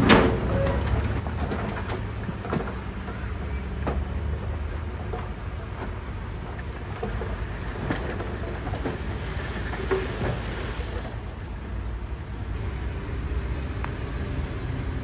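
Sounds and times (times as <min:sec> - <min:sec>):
metallic clanks and rattles: 0:00.0 - 0:10.6
diesel machinery rumble: 0:00.0 - 0:15.0.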